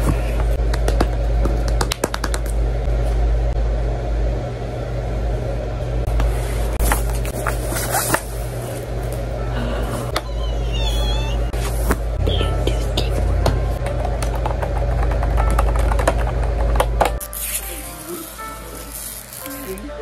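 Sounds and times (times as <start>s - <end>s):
foam packaging wrap rustling: 6.7s - 9.2s, 17.2s - 19.9s.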